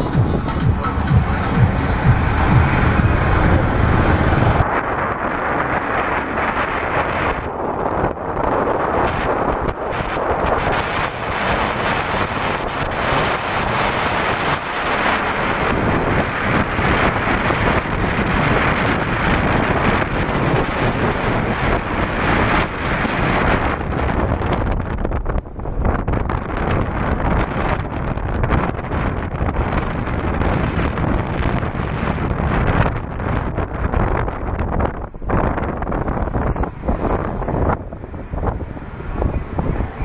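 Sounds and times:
vehicle rumble in traffic: 0.0 - 40.0
wind buffeting microphone: 0.0 - 40.0.

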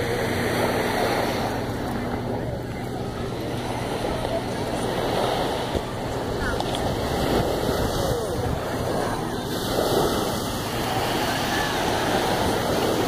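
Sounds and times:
surf washing on beach: 0.0 - 13.0
wind on microphone: 3.7 - 13.0.

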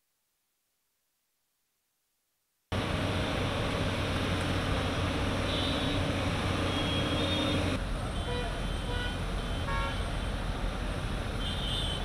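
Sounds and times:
vehicle engine humming: 2.7 - 12.0
traffic on flooded road: 2.8 - 12.0.

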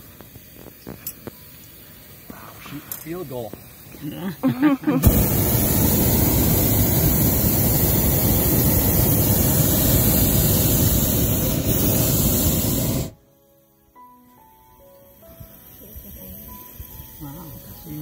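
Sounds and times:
propane burner blast: 0.0 - 13.2.

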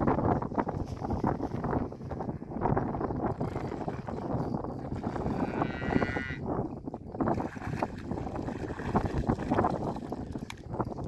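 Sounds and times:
fish thrashing and splashing: 7.3 - 10.7.

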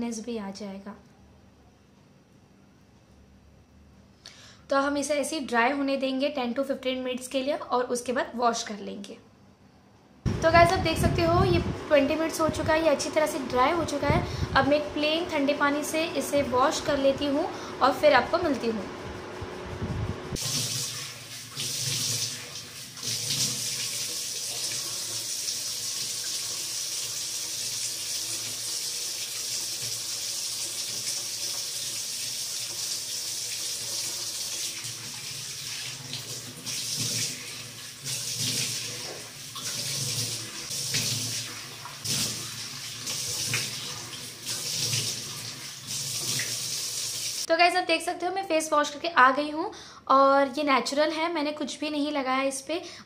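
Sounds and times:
water running from a tap: 20.4 - 47.5.

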